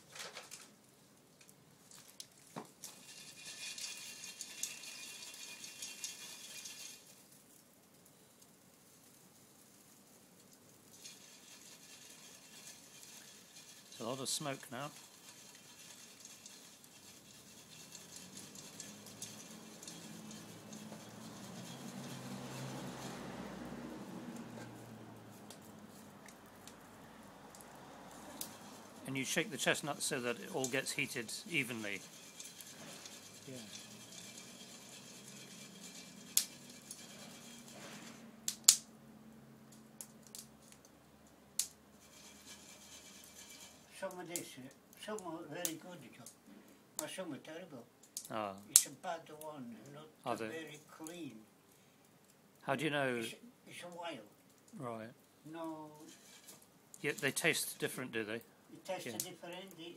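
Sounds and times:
wood fire crackling: 0.0 - 59.9
sharp snaps: 38.5 - 38.9, 48.1 - 49.0.

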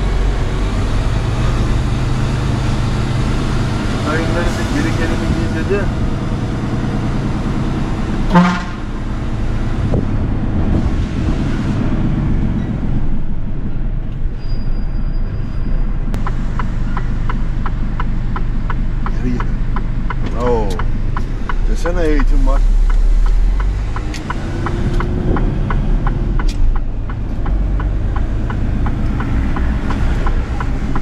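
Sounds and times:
truck engine running: 0.0 - 14.2, 14.8 - 31.0
horn toot: 8.3 - 9.0
regular ticking: 16.1 - 31.0.

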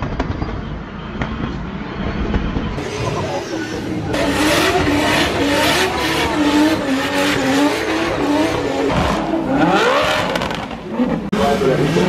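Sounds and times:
car engine revving hard: 4.1 - 12.0.

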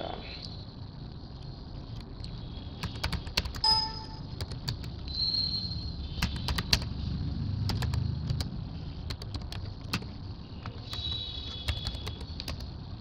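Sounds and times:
keyboard keystrokes: 2.8 - 3.7, 4.4 - 5.0, 6.2 - 6.9, 7.7 - 8.5, 9.1 - 12.7.

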